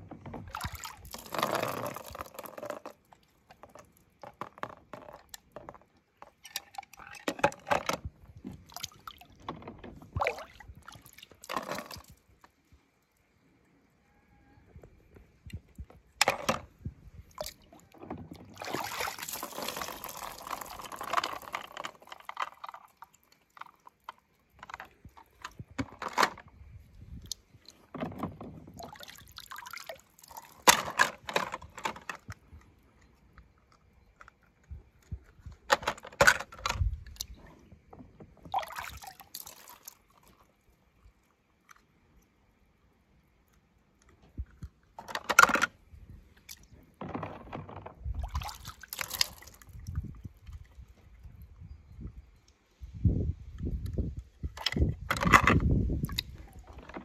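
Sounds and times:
water splashing and dripping: 0.4 - 7.6, 8.3 - 12.7, 17.1 - 25.6, 27.1 - 31.4, 38.4 - 41.8, 48.1 - 51.2.

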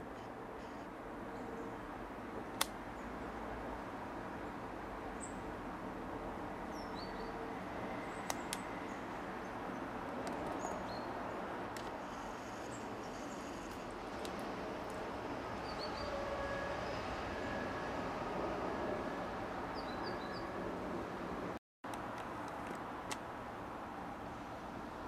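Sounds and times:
outdoor background noise: 0.0 - 25.0.

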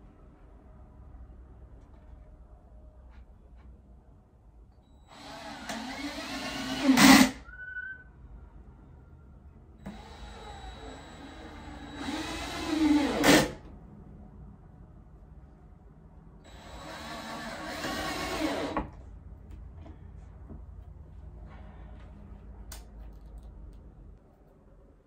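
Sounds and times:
cordless drill driving screws: 5.1 - 7.4, 9.9 - 13.6, 16.5 - 18.8.

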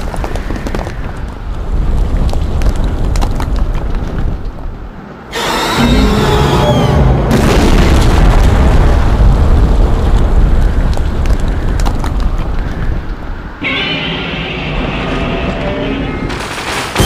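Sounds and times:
explosion boom: 7.1 - 10.5
explosion crackles: 7.2 - 13.0.

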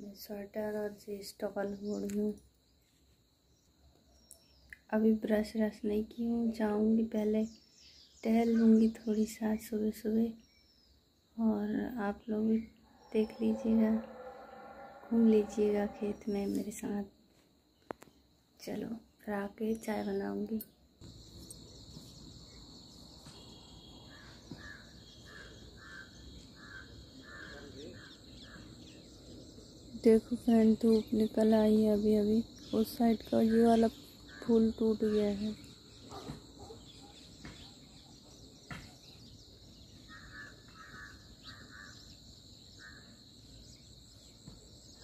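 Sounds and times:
insects droning: 0.0 - 45.0
high-pitched insect drone: 12.7 - 17.1
bird calls: 12.8 - 16.7, 21.4 - 45.0
crow cawing: 24.1 - 28.6, 40.1 - 42.0.

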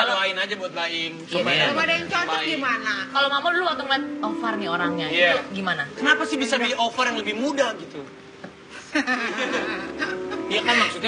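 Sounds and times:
laughter: 8.8 - 11.0
people talking: 10.5 - 11.0.

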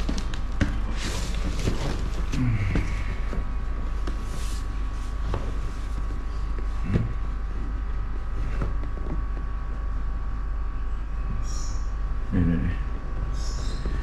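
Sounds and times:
low hum and hiss: 0.0 - 14.0.

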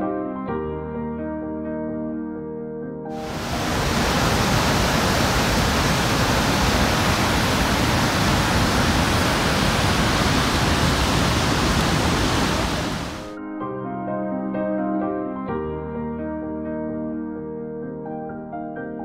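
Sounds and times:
waterfall rushing: 3.2 - 13.4.

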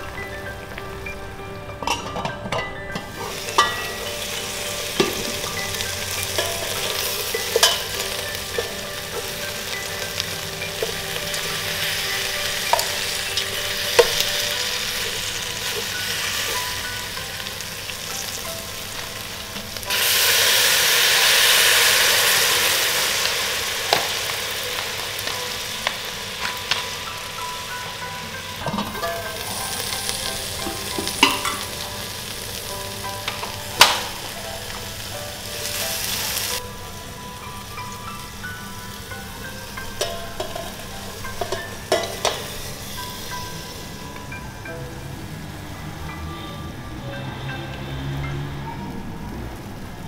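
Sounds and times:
chicken sizzling in a pot: 0.0 - 46.3
metal tongs clicking on pot: 6.4 - 9.3.

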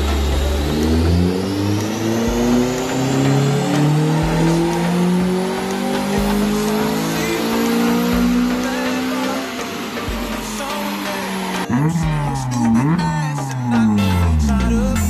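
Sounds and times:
car engine revving on a dyno: 0.0 - 14.9.

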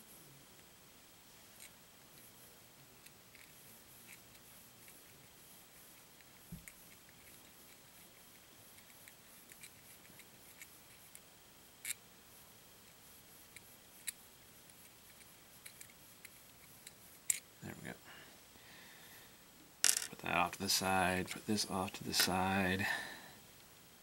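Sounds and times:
small clicks and ticks: 6.0 - 12.0, 12.8 - 17.4.

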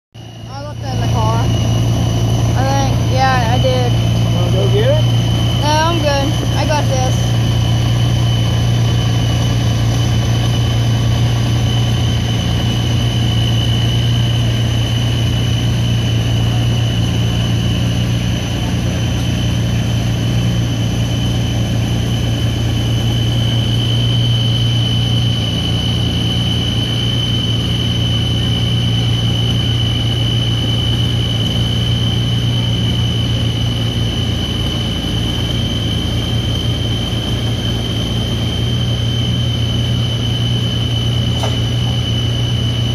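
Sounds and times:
high whine: 0.2 - 42.9
tractor engine idling: 0.2 - 42.9.

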